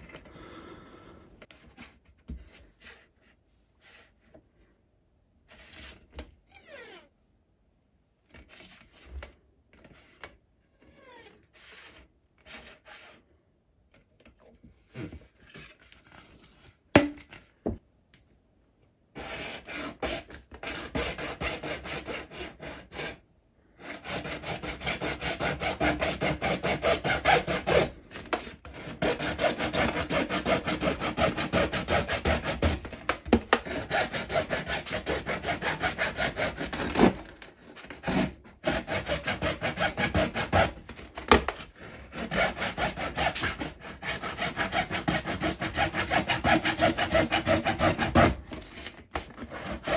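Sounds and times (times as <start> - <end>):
hacksaw cutting plastic pipe: 19.2 - 23.2, 23.8 - 49.9.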